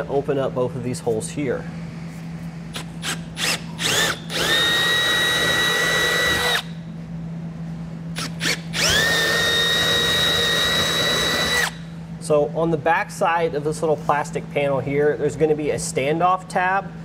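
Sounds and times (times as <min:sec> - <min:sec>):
cordless drill whining: 0:02.8 - 0:06.7, 0:08.2 - 0:11.8.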